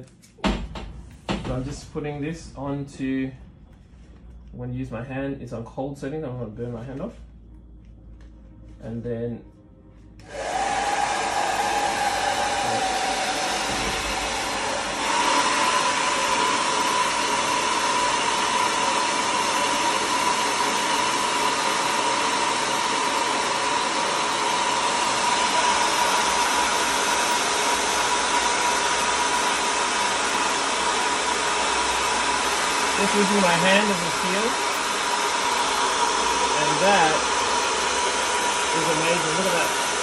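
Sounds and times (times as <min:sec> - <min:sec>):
hair dryer blowing air: 0:10.2 - 0:40.0.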